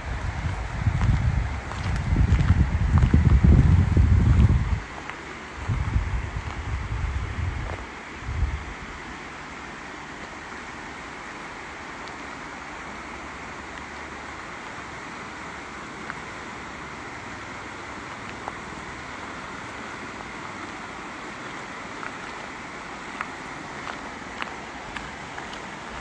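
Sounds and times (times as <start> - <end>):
fast-flowing river rushing: 7.9 - 26.0.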